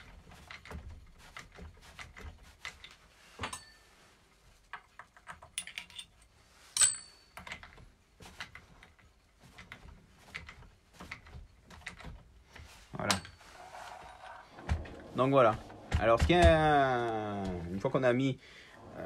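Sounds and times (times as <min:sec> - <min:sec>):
ringing metal clink: 0:06.8 - 0:07.4.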